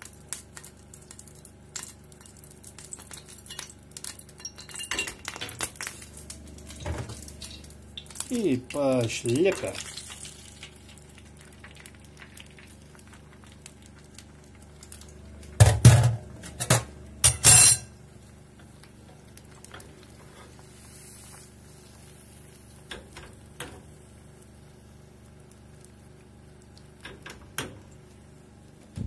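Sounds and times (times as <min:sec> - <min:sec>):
faint steady hum: 0:00.0 - 0:29.0
dishes clinking in metal sink: 0:15.6 - 0:17.9.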